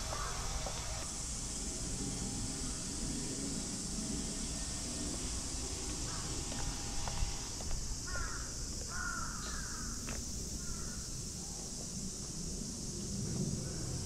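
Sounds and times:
crow cawing: 0.1s - 0.5s, 8.0s - 10.0s, 10.6s - 11.0s.

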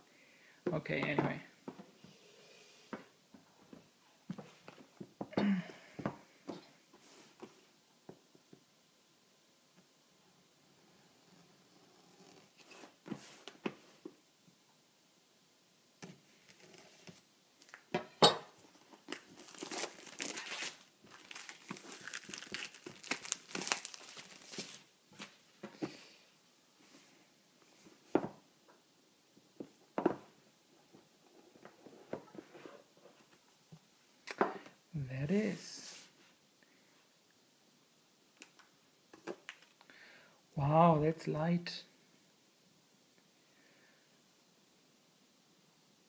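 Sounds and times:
shrink-wrap crinkling and tearing: 19.0s - 25.4s.

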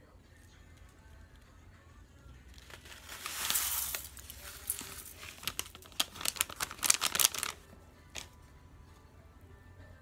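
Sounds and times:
plastic packet crinkling: 2.6s - 7.6s.

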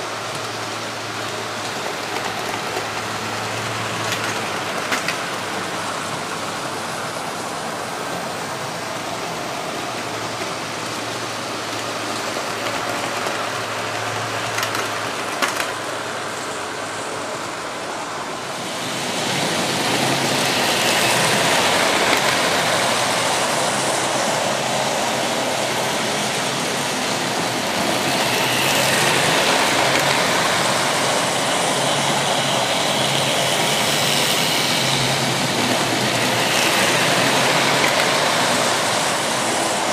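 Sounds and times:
model trains whirring on rails: 0.0s - 39.9s.

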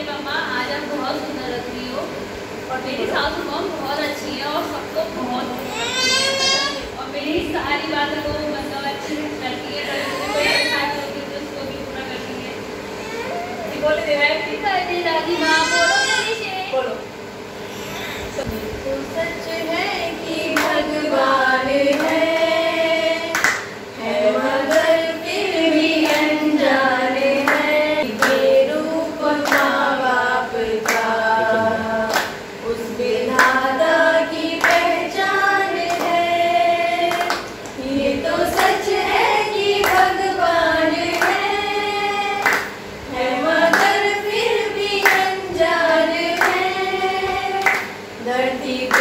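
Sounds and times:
women singing together: 18.8s - 49.0s
hand claps: 20.5s - 20.9s, 21.9s - 22.5s, 23.3s - 23.7s, 26.0s - 26.3s, 27.4s - 28.5s, 29.4s - 29.8s, 30.8s - 31.1s, 32.1s - 32.4s, 33.3s - 33.6s, 34.6s - 34.9s, 35.8s - 36.2s, 37.1s - 37.8s, 38.5s - 38.8s, 39.8s - 40.1s, 41.1s - 41.4s, 42.4s - 42.8s, 43.7s - 44.0s, 45.0s - 45.4s, 46.3s - 46.7s, 47.6s - 48.0s.

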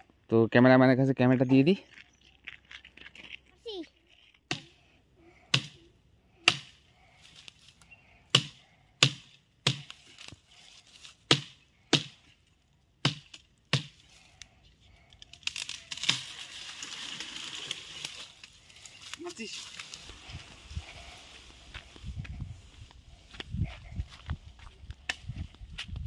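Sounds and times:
machete chopping wood: 4.5s - 4.7s, 5.5s - 5.8s, 6.5s - 6.8s, 8.3s - 10.0s, 11.3s - 12.2s, 13.0s - 14.0s
leaves rustling: 9.9s - 11.5s, 15.0s - 24.8s.

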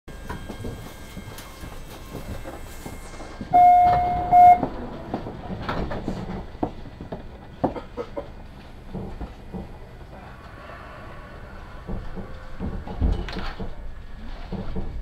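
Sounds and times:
subway car rumble and hum: 0.1s - 15.0s
electronic door chime tone: 3.6s - 4.6s.

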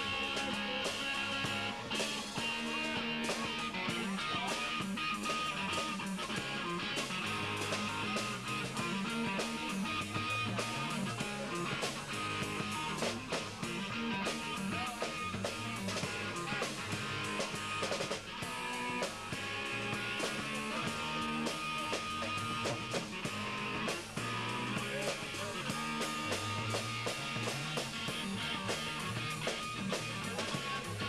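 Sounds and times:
drum kit beat with cymbals: 0.0s - 31.0s
guitar: 0.0s - 31.0s.

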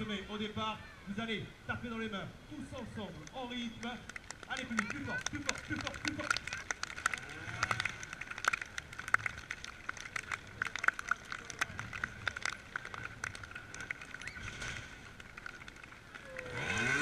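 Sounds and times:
spectators clapping along: 3.2s - 17.0s
motorcycle engine revving: 14.4s - 17.0s.

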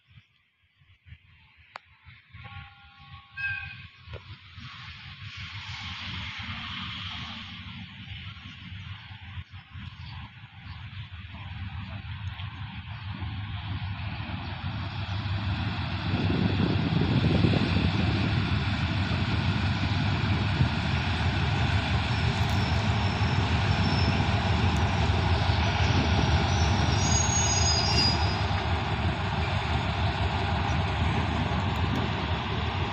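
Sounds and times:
wheels rumbling on rails: 1.6s - 32.9s
faint high squeals: 2.4s - 4.0s, 22.1s - 25.0s, 25.6s - 28.6s
locomotive engine drone: 4.3s - 32.9s.

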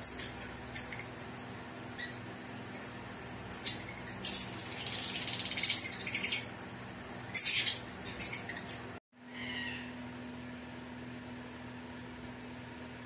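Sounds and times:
birds chirping and twittering: 0.0s - 10.0s.

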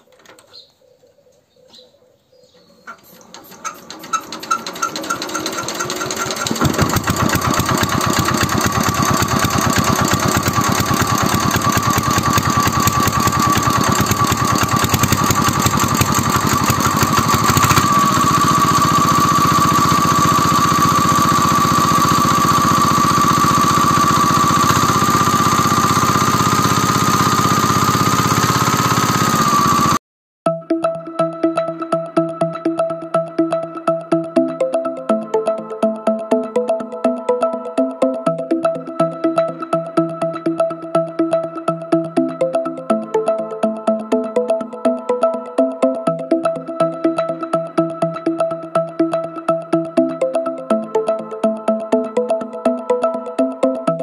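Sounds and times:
diesel engine knocking: 4.6s - 30.0s.

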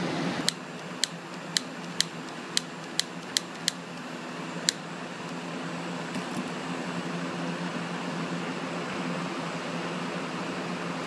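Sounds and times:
torch igniter clicking: 0.4s - 5.5s.

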